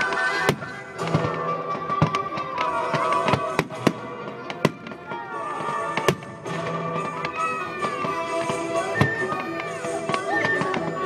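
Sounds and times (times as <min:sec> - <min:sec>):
fireworks bangs: 0:00.0 - 0:11.0
music: 0:00.0 - 0:11.0.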